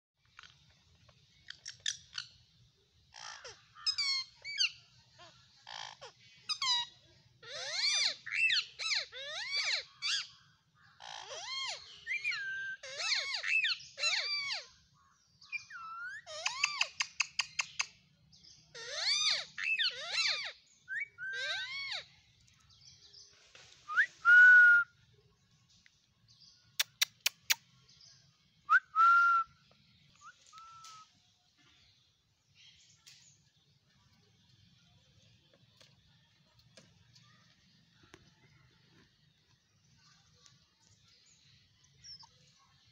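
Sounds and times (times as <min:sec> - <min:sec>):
parakeets chattering and squawking: 0:01.4 - 0:02.5, 0:03.1 - 0:14.8, 0:15.6 - 0:18.0, 0:18.7 - 0:22.6.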